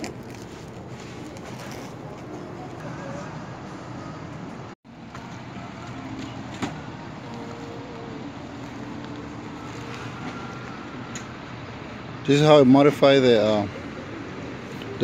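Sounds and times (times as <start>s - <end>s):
distant road traffic hum: 0.0s - 15.0s.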